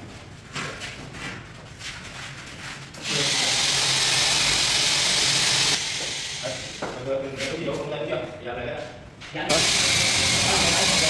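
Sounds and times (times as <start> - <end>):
power tool whirring: 3.0 - 6.9, 9.5 - 11.0.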